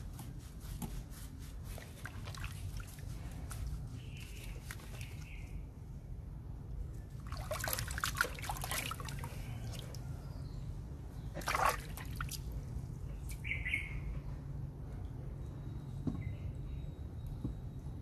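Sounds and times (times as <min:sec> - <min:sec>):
water splashing and trickling: 0:01.6 - 0:05.6, 0:06.9 - 0:10.2, 0:11.3 - 0:13.5.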